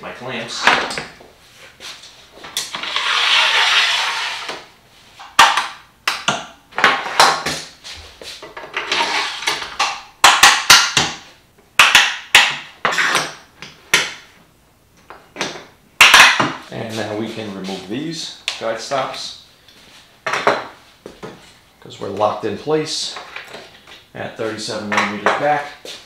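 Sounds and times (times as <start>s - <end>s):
guide rail sliding on wood: 2.7s - 4.6s.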